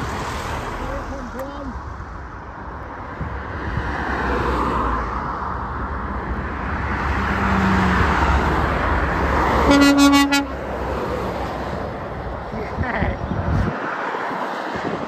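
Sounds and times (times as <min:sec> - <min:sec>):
road traffic passing: 0:00.0 - 0:15.0
lorry horn blast: 0:09.7 - 0:10.6.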